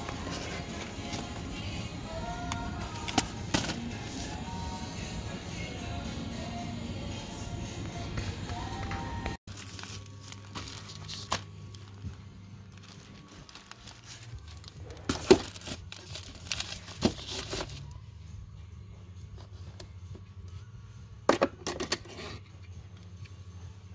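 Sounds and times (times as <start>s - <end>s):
wrappers crinkling: 9.5s - 17.8s.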